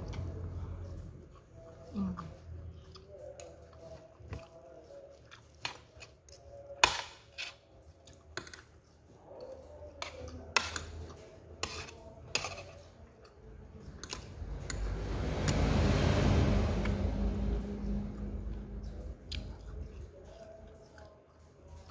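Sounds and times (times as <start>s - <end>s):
rushing noise: 14.4s - 18.8s.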